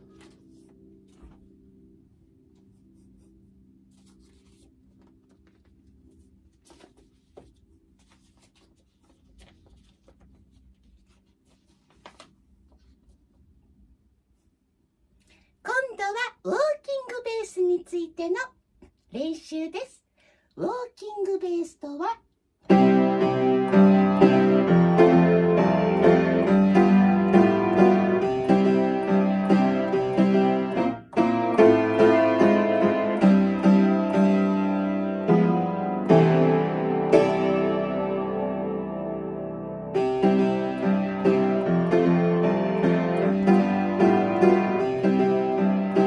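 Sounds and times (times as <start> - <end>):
paper rustling: 0.0 - 1.6, 2.6 - 13.5
upright piano playing: 22.7 - 46.0.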